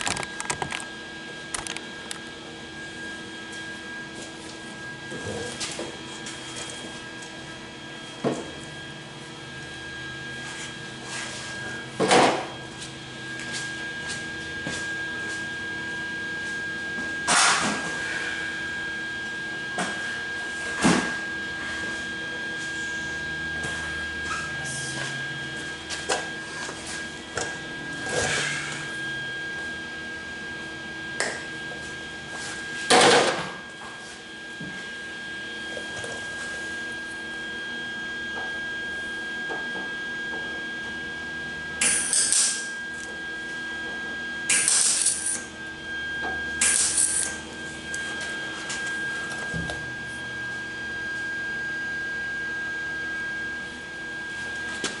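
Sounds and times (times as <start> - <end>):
steady high whine: 0.0 - 55.0.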